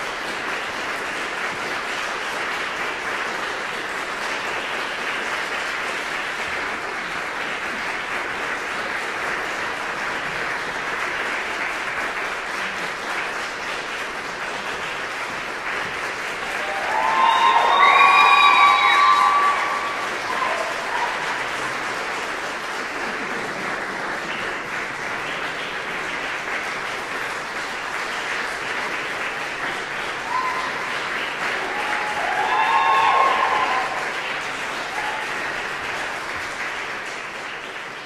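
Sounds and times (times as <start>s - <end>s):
audience applauding: 0.0s - 38.0s
audience cheering: 16.4s - 21.7s, 30.2s - 35.5s.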